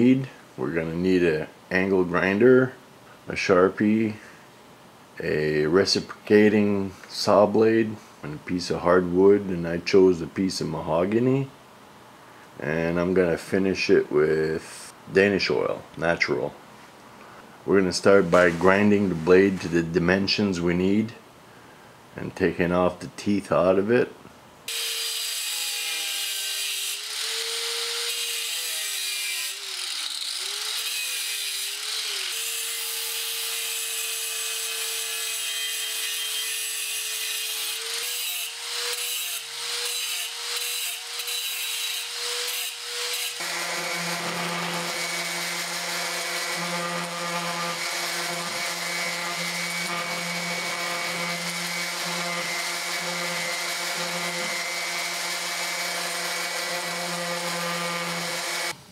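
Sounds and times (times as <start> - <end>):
angle grinder grinding steel: 24.7 - 58.8
power tool with low steady tone: 24.7 - 58.9.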